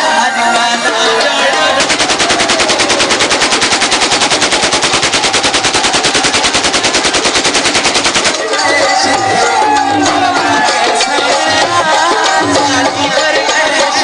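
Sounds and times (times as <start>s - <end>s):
music: 0.0s - 4.5s, 7.0s - 14.0s
automatic rifle fire: 1.7s - 8.7s.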